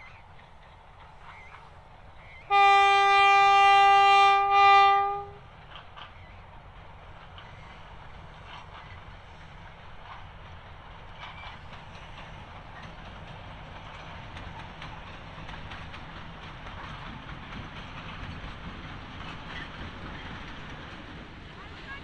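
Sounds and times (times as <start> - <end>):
train engine rumble: 0.0 - 22.0
wheels clicking over rails: 5.0 - 22.0.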